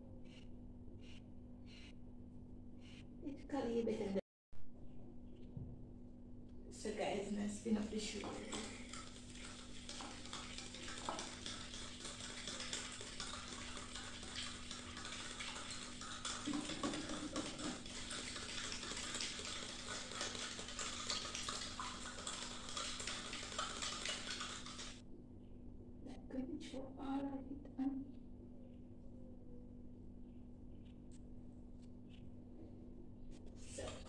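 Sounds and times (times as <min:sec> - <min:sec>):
fork stirring in plastic cup: 0:07.8 - 0:25.0.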